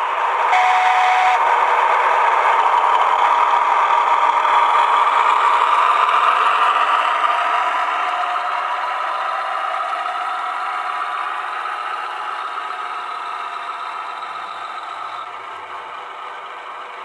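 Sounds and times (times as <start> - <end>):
diesel engine sound from speaker: 0.0 - 17.0
high steady tone: 0.5 - 1.4.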